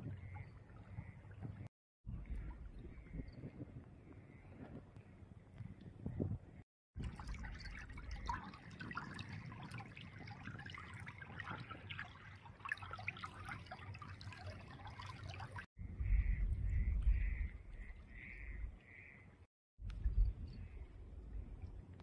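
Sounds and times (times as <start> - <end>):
wind buffeting microphone: 0.0 - 12.0, 15.8 - 19.1, 19.8 - 22.0
floodwater trickling and babbling: 0.0 - 22.0.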